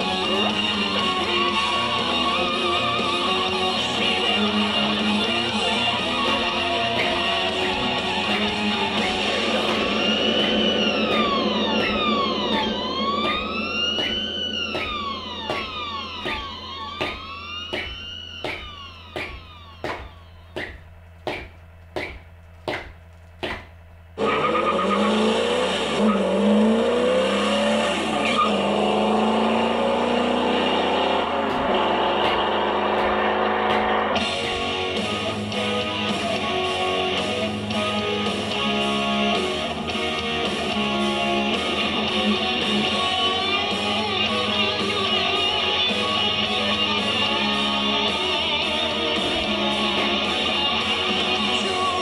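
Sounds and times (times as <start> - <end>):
guitar music: 0.0 - 20.1, 24.2 - 52.0
wailing siren: 0.0 - 20.8, 24.2 - 37.0, 39.2 - 52.0
loud revving engine whine: 0.0 - 21.1, 24.2 - 52.0
jump rope taps: 17.0 - 23.7.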